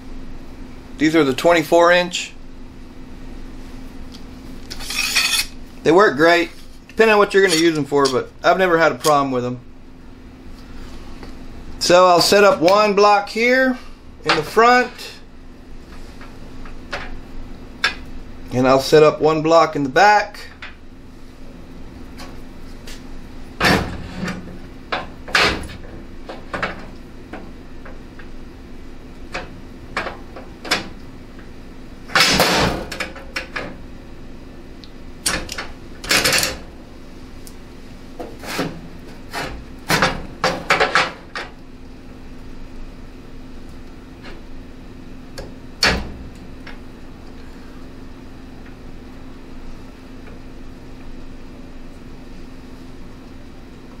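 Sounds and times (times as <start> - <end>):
steady low hum: 0.0 - 54.0
rasping scrape: 4.7 - 5.6.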